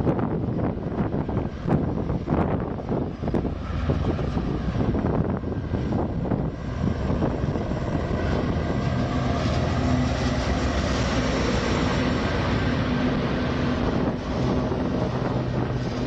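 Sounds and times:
locomotive engines droning: 0:00.0 - 0:16.0
moving train noise: 0:00.0 - 0:16.0.

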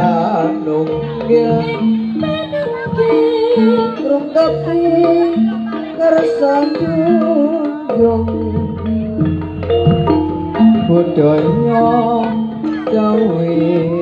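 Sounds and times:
gamelan melody: 0:00.0 - 0:14.0
hand drum rhythm: 0:00.0 - 0:14.0
wavering high melody line: 0:00.0 - 0:14.0.

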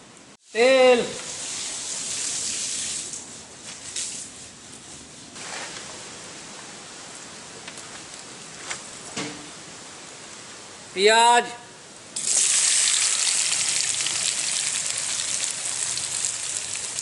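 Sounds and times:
spices sizzling in hot oil: 0:12.2 - 0:17.0.

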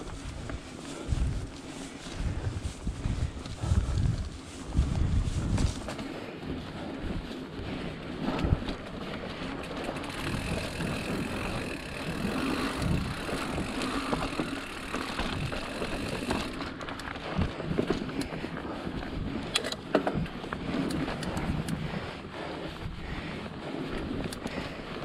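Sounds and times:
bike knocks and rattles: 0:00.0 - 0:06.2, 0:08.2 - 0:21.8
bike tyres rolling on dirt: 0:00.0 - 0:25.0.

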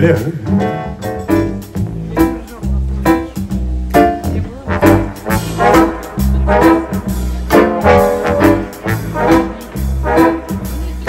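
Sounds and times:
double bass: 0:00.0 - 0:11.0
trombone ensemble: 0:03.0 - 0:11.0.

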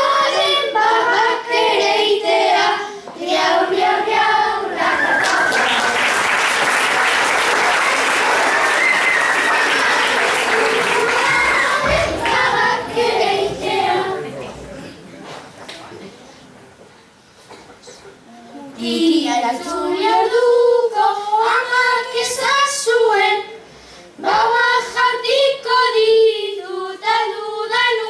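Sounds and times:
children singing together: 0:00.0 - 0:06.0, 0:07.4 - 0:14.7, 0:18.6 - 0:28.0
audience applause: 0:04.8 - 0:13.4
voices: 0:06.9 - 0:16.9.

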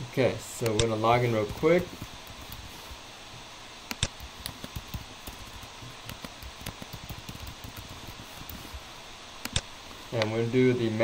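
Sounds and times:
faint steady hiss: 0:00.0 - 0:11.0
computer keyboard typing: 0:00.7 - 0:02.8, 0:03.9 - 0:08.8.

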